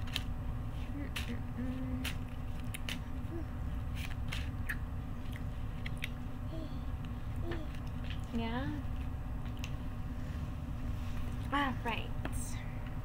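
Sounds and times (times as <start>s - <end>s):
person chewing crunchy food: 2.0s - 6.2s.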